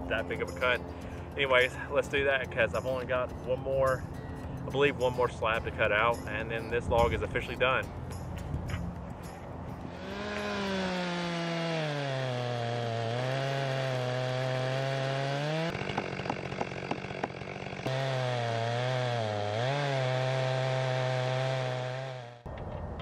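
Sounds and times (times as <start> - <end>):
chainsaw cutting log: 9.8 - 22.5.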